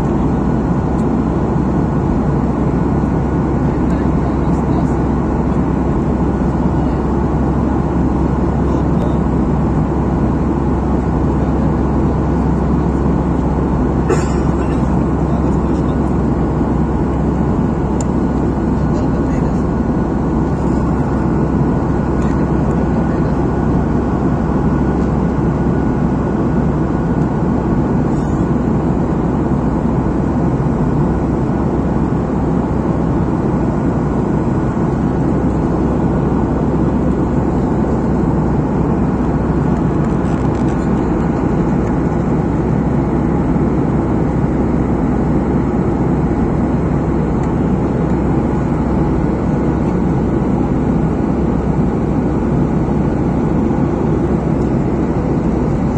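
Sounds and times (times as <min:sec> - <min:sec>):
faint jet engine whine: 0:00.0 - 0:55.9
deep rushing cabin noise: 0:32.1 - 0:55.9.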